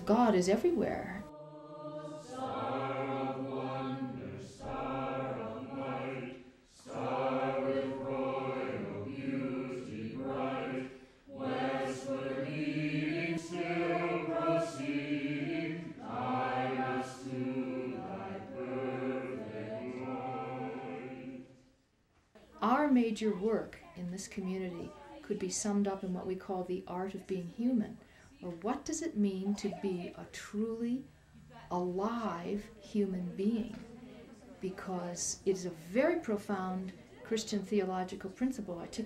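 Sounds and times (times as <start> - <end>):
group chanting a sung prayer: 1.2 - 21.7.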